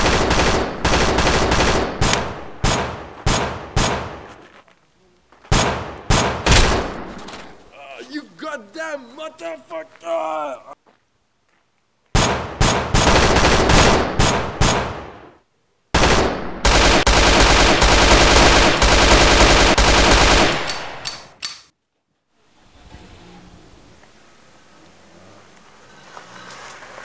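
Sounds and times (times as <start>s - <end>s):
automatic gunfire bursts: 0.0s - 4.1s, 12.2s - 15.1s, 16.0s - 21.1s.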